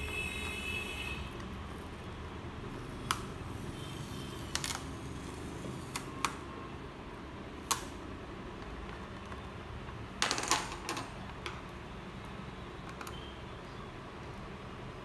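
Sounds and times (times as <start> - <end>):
plastic clips snapping loose: 7.6 - 8.0.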